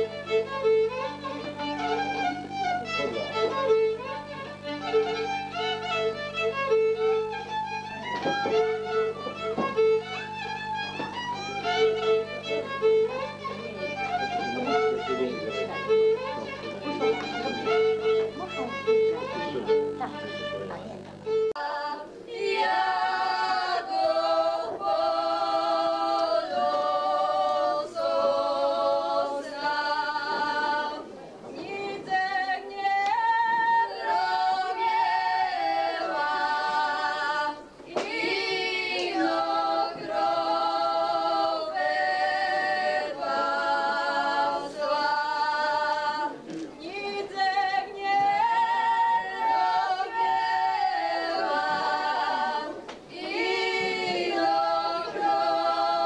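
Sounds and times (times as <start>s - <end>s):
women singing in harmony: 21.6s - 56.0s.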